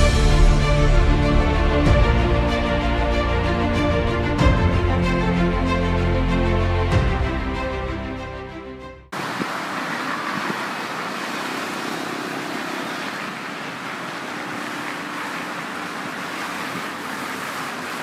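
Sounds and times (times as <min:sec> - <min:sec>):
orchestral music: 0:00.0 - 0:09.1.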